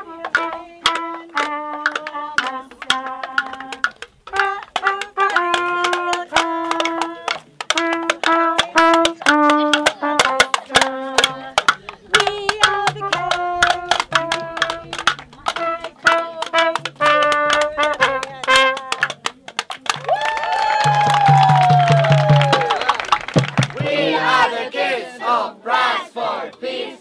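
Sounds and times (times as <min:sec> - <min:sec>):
trumpet melody: 0:00.0 - 0:19.3
sticks beating cardboard boxes: 0:00.0 - 0:22.8.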